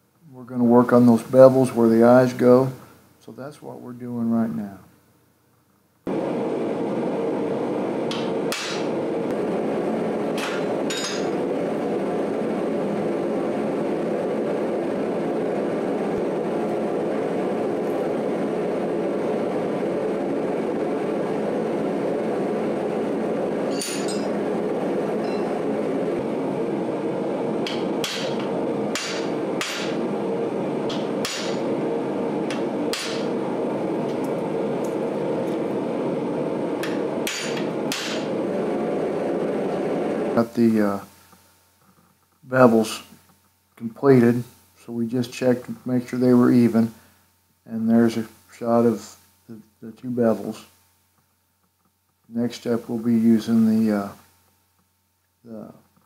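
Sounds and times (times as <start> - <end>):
loud shop roar: 6.1 - 40.5
hammer striking metal: 8.1 - 8.9, 10.4 - 11.4, 23.7 - 24.3, 27.6 - 30.0, 30.9 - 31.6, 32.5 - 33.3, 36.8 - 38.3.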